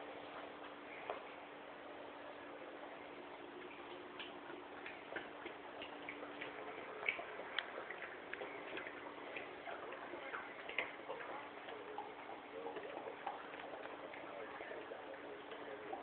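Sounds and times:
puppy eating from metal bowl: 0:03.6 - 0:16.0.

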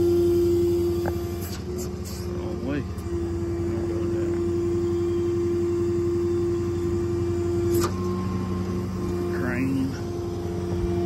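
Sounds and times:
truck engine hum and whine: 0:00.0 - 0:11.0.

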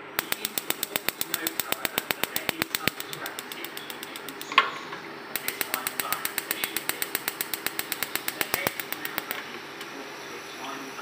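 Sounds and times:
spark igniter clicking rapidly: 0:00.0 - 0:04.7, 0:05.4 - 0:09.9
gas burner igniting pop: 0:00.0 - 0:09.9.

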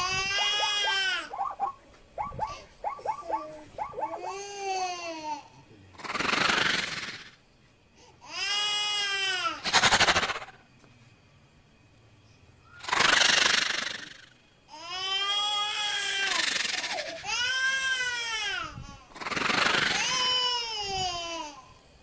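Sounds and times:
harsh noisy bursts: 0:06.0 - 0:07.4.

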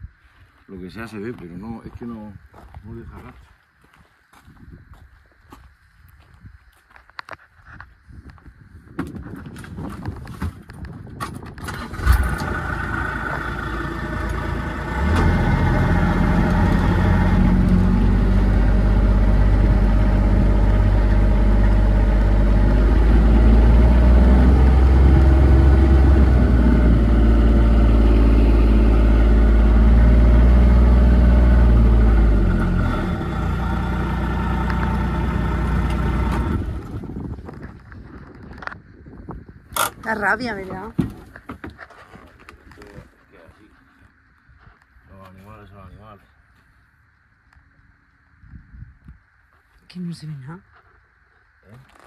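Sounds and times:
vehicle engine running: 0:11.8 - 0:37.5.

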